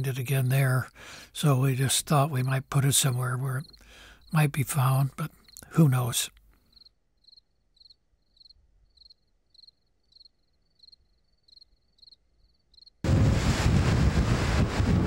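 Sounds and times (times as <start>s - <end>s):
cricket chirping: 0.0s - 13.0s
rush of wind: 13.0s - 15.0s
surf noise: 13.1s - 15.0s.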